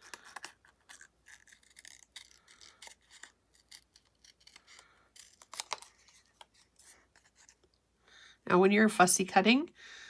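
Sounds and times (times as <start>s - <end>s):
scissors snipping paper: 0.0s - 7.6s.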